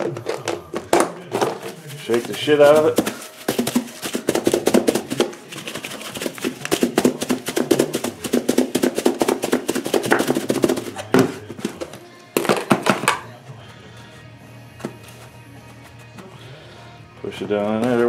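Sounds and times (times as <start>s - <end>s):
food rattling in shaken plastic container: 0.0s - 11.0s.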